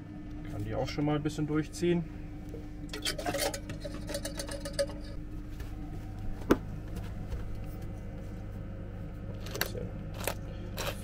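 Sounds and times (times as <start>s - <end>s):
steady low hum: 0.0s - 11.0s
kitchen utensils clattering: 3.0s - 5.2s.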